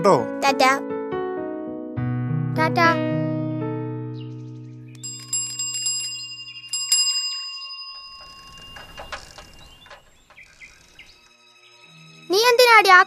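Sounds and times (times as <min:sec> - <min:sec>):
piano chord: 0:00.2 - 0:05.0
small metal bell ringing: 0:05.0 - 0:10.4.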